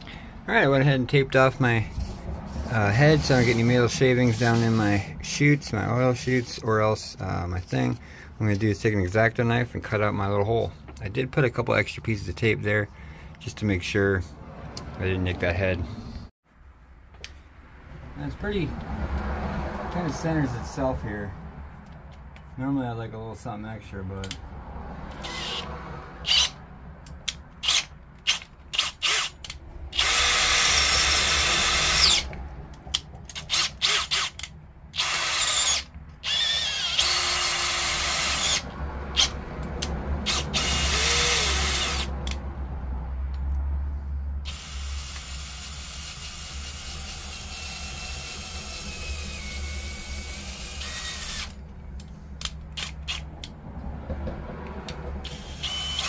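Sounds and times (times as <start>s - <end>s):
cordless drill boring metal: 25.1s - 26.6s, 27.6s - 32.3s, 33.3s - 39.4s, 40.2s - 42.1s, 44.5s - 51.6s, 52.8s - 53.2s, 55.2s - 56.0s.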